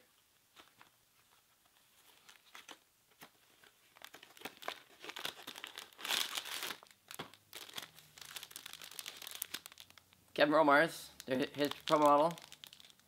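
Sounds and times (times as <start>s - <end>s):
plastic packaging crinkling: 3.6s - 10.2s, 11.1s - 13.0s.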